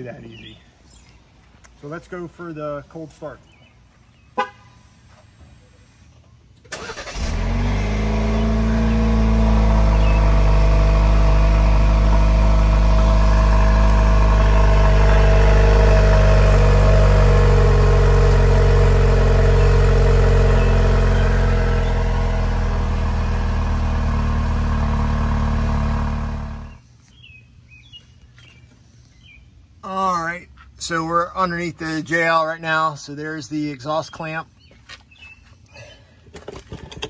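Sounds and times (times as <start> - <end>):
car engine idling: 6.8 - 26.8.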